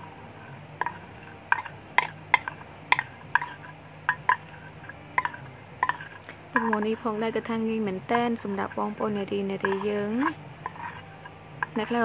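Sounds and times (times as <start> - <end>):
metal spoon clinking on steel: 0.8 - 7.4, 9.5 - 12.0.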